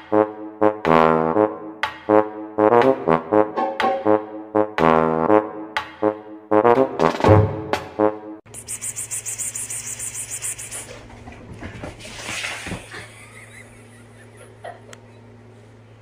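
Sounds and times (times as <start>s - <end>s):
person whispering pspsps to cat: 8.5s - 11.0s
low steady hum: 8.5s - 16.0s.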